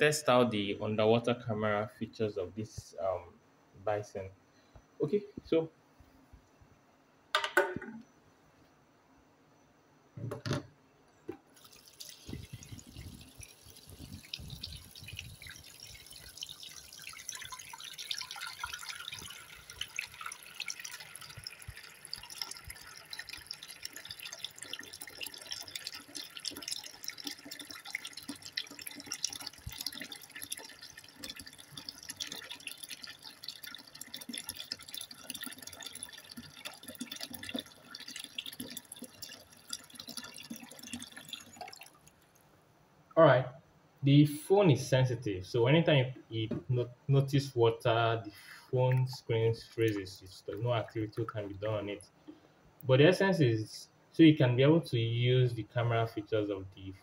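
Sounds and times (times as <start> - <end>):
tap water running into washbasin: 11.6 - 42.2, 48.3 - 52.0.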